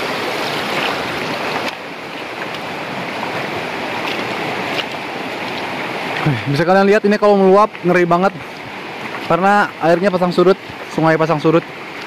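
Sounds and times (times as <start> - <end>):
river rushing over rocks: 0.0 - 12.0.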